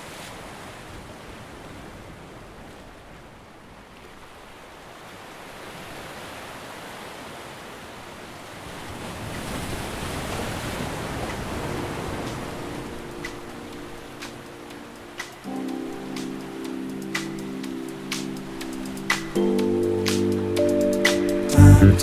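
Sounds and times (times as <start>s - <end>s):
waves washing on rocky shore: 4.3s - 19.6s.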